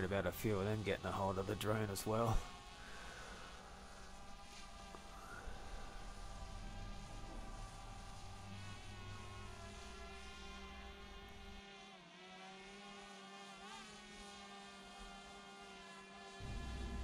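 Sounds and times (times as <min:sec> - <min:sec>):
drone propellers buzzing: 0:00.0 - 0:17.0
low rumble: 0:16.4 - 0:17.0.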